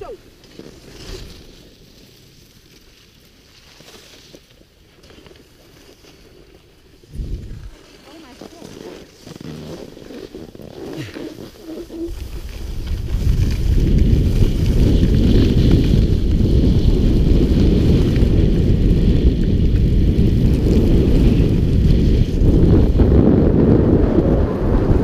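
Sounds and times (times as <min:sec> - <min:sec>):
skis hissing on snow: 0:05.7 - 0:16.8
wind buffeting microphone: 0:07.0 - 0:08.8, 0:10.8 - 0:25.0.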